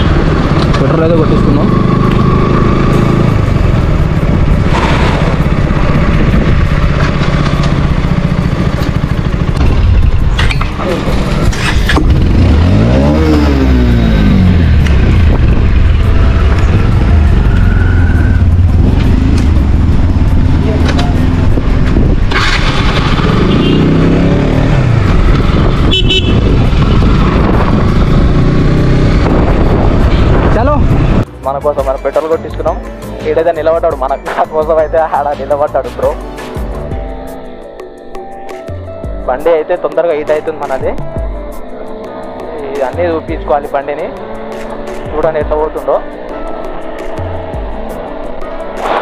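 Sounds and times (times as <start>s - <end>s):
motorcycle engine at low revs: 0.0s - 31.3s
wind rumble on microphone: 3.1s - 31.3s.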